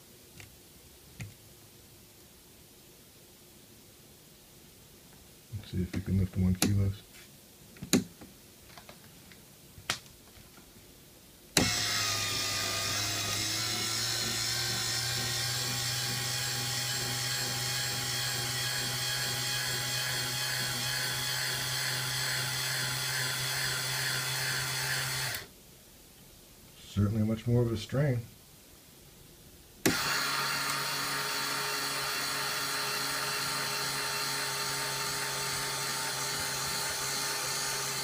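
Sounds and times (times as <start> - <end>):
small motor whining under load: 11.6 - 25.5, 29.8 - 38.0.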